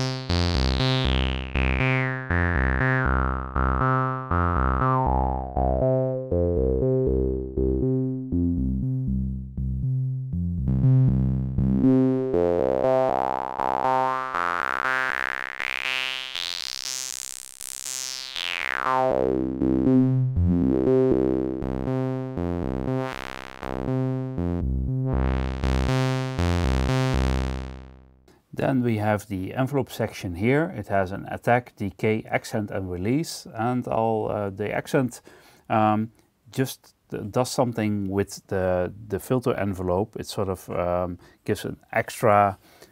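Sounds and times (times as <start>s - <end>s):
synthesizer note sequence: 0.0s - 28.1s.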